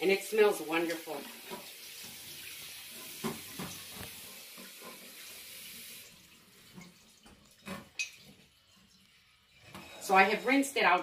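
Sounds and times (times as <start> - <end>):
tap water running into sink: 0.6 - 9.2.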